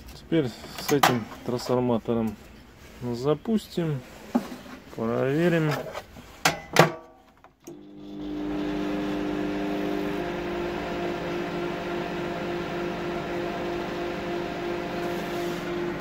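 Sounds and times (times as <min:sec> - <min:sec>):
microwave oven humming: 0:07.7 - 0:16.0.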